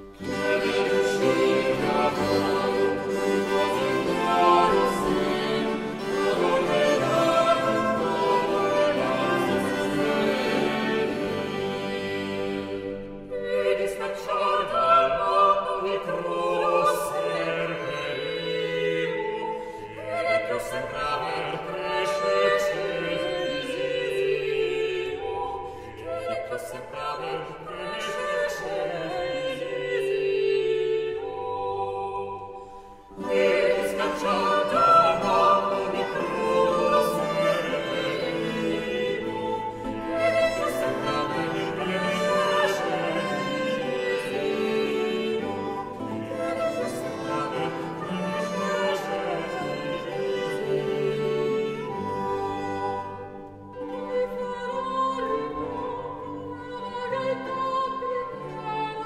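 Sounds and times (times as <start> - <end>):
orchestral accompaniment: 0.0 - 20.6, 32.8 - 59.0
operatic singing: 0.0 - 59.0.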